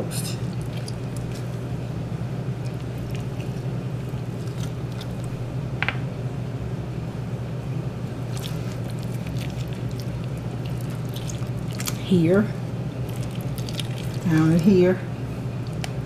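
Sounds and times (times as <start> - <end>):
fingers squishing raw meat: 0.4 - 1.6, 2.6 - 5.4, 8.2 - 12.1, 13.0 - 14.4.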